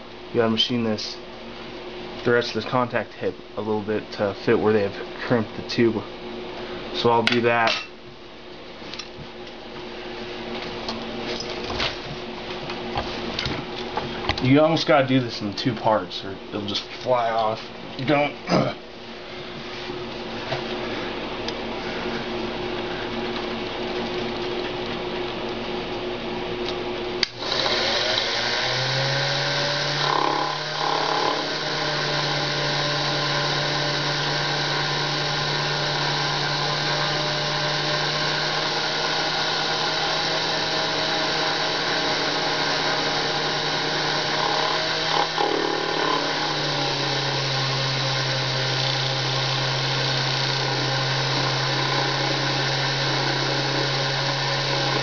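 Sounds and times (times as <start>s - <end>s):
steady low hum: 0.0s - 55.0s
mini lathe motor whining: 27.2s - 55.0s.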